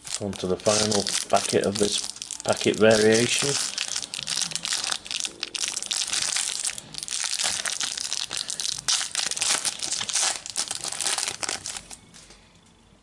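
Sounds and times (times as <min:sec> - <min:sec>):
foil packet crackling: 0:00.0 - 0:12.0.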